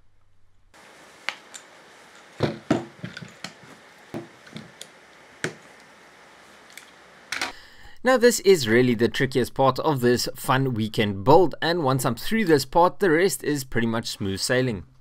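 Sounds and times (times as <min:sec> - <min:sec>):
wood bundle knocking on workbench: 0:02.4 - 0:04.8.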